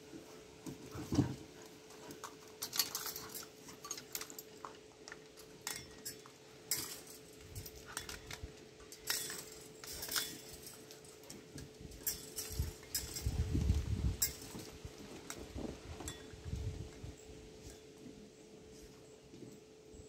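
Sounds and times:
metal utensils and chains clinking: 2.2 - 13.5, 14.1 - 15.4.

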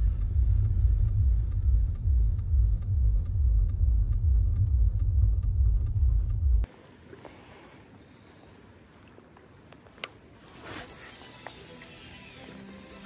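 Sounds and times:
car driving rumble from inside: 0.0 - 6.7.

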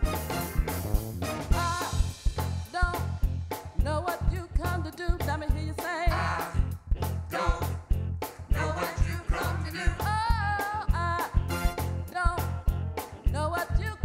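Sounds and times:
keyboard: 0.0 - 1.8
drum beat: 0.0 - 13.2
bass line: 0.0 - 14.0
woman singing gospel: 3.8 - 6.6, 8.5 - 11.4, 13.3 - 14.0.

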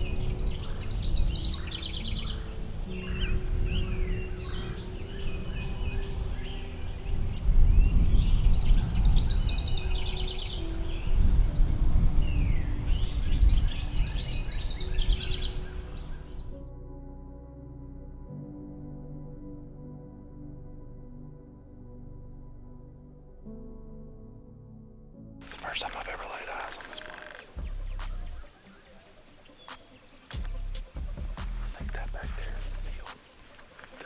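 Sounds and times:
songbirds singing: 0.0 - 16.7, 25.4 - 34.0.

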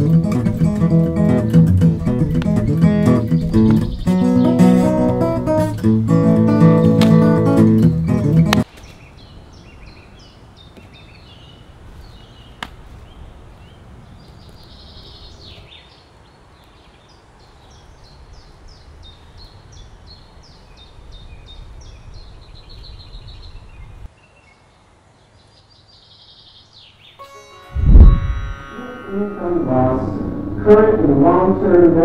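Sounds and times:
birds chirping and trilling: 0.1 - 27.5
low outdoor rumble: 29.2 - 32.0.

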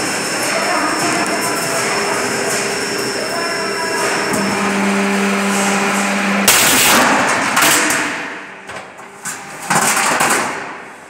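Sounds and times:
machine running hum: 0.0 - 9.8
loud metallic crash: 4.0 - 8.7
metal bang: 4.0 - 9.0.

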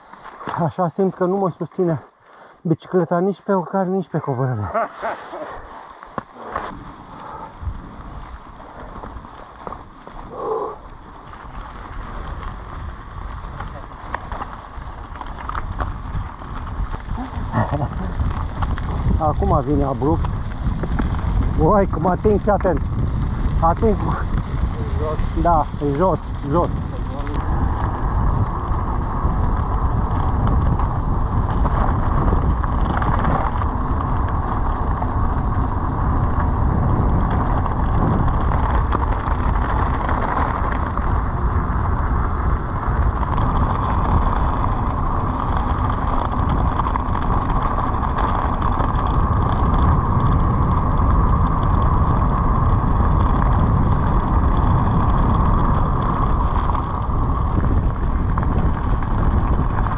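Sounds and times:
bicycle tyre rumble: 0.0 - 59.9
wind rushing over microphone: 5.4 - 59.9.

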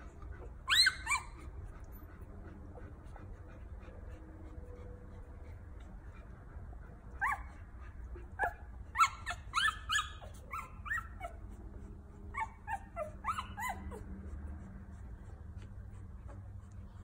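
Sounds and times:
puppies squealing and whimpering: 0.4 - 1.5, 8.4 - 11.6, 12.4 - 14.2.

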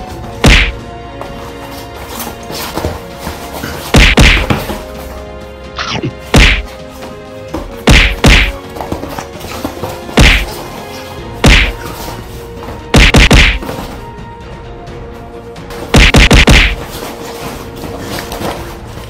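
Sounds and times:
background music with sustained tones: 0.0 - 19.0
loud punch hits: 0.4 - 0.8, 3.9 - 4.6, 6.3 - 6.7, 7.8 - 8.6, 10.2 - 10.5, 11.4 - 11.8, 12.9 - 13.6, 15.9 - 16.8.

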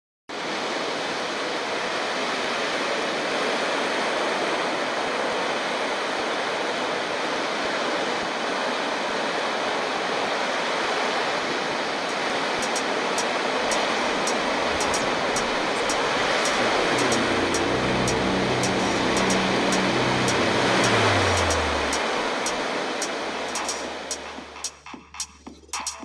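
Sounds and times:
steady rushing noise: 11.2 - 24.9.

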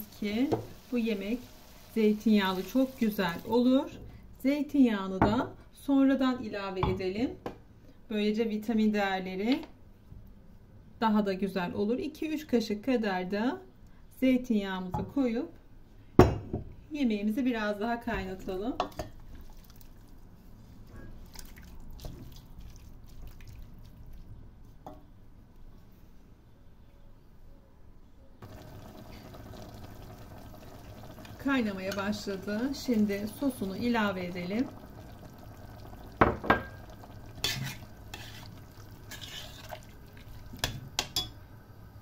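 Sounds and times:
wet squelching of stirred stew: 19.2 - 24.4, 36.8 - 40.9
wet scraping and squelching: 37.4 - 40.0.

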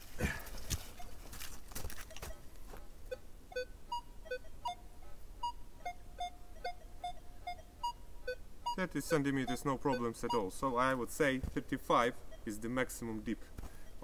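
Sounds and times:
metal detector beeps: 3.1 - 4.8, 5.4 - 10.9.

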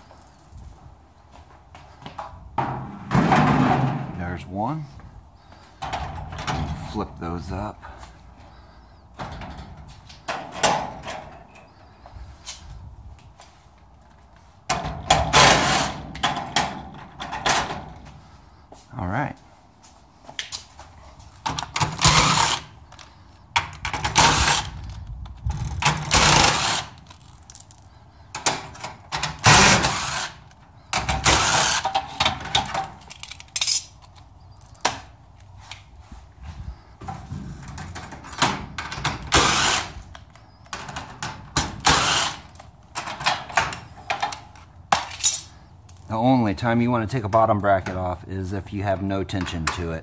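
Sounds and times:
cordless drill running in bursts: 22.0 - 22.7, 26.1 - 27.0, 29.5 - 30.4, 31.2 - 31.8, 39.3 - 40.0, 41.8 - 42.4.

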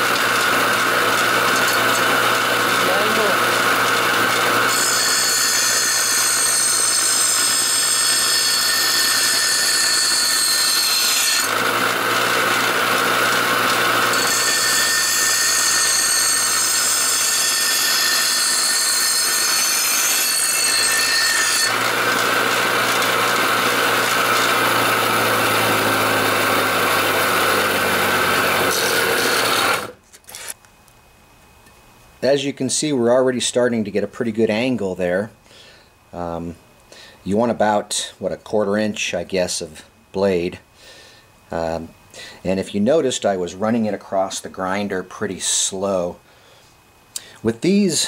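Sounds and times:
bench grinder motor hum: 0.0 - 30.6.

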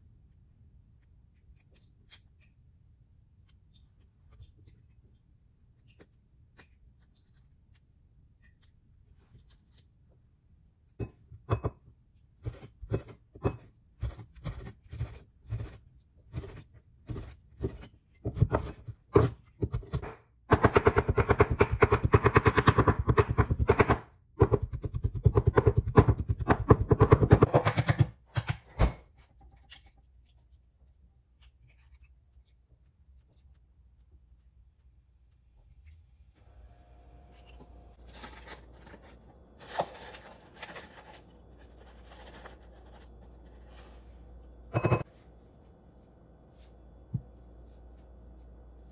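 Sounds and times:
knife chopping on wooden board: 17.6 - 29.0.

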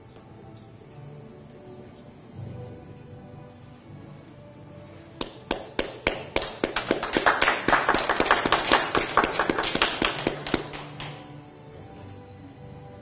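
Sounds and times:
crowd clapping: 5.2 - 11.2.

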